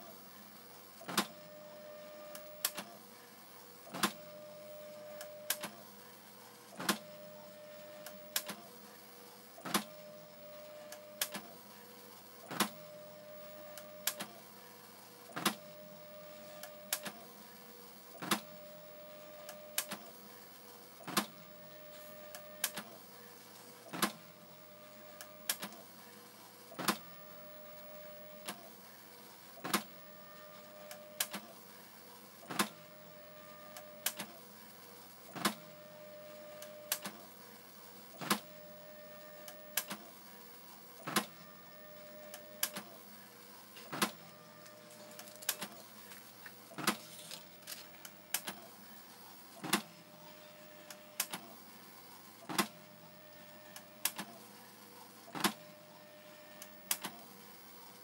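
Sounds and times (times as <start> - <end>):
printer head whine: 0.0 - 58.0
printer clacks and clicks: 1.0 - 1.5, 3.8 - 5.9, 6.7 - 8.8, 9.6 - 11.7, 12.4 - 14.5, 15.2 - 17.4, 18.2 - 18.6, 21.0 - 21.5, 22.2 - 26.0, 26.7 - 28.8, 29.5 - 31.7, 32.4 - 33.0, 33.6 - 35.8, 36.4 - 37.4, 38.1 - 41.4, 42.0 - 48.9, 49.5 - 54.6, 55.2 - 57.5.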